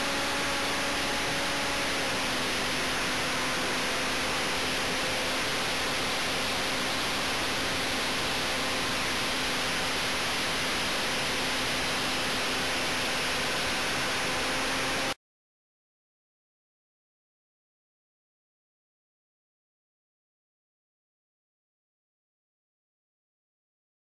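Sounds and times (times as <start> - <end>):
faint motor and propeller hum: 0.0 - 15.2.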